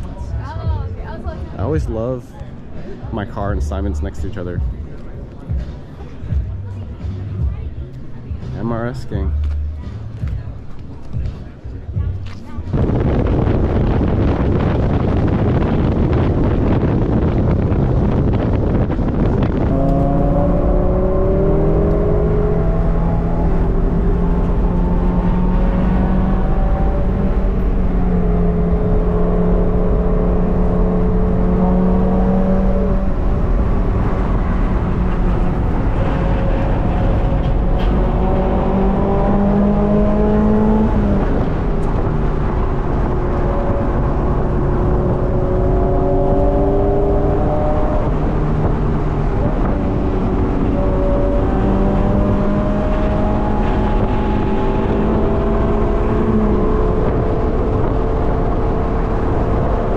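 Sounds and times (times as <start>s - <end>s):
road noise: 0.0s - 59.9s
wind rush: 12.0s - 59.9s
car engine revving and shifting: 12.2s - 59.9s.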